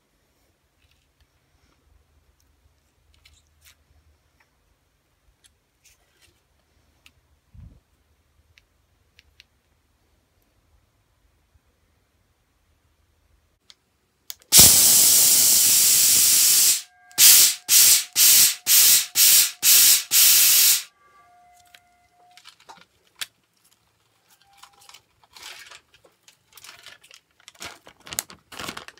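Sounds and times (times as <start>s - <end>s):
web shooter spraying hiss: 14.5s - 20.9s
crinkling: 21.5s - 28.9s.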